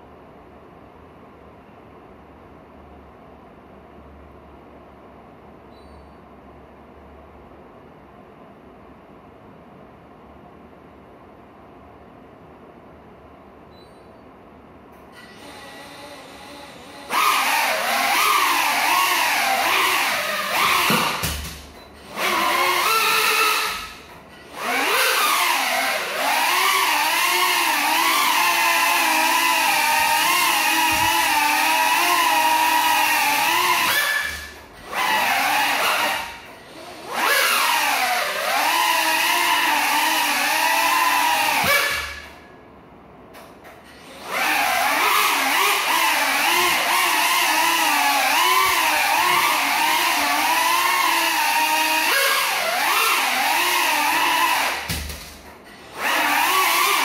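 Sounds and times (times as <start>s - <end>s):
quadcopter motors whining: 15.2s - 42.4s, 43.8s - 55.1s, 55.7s - 57.0s.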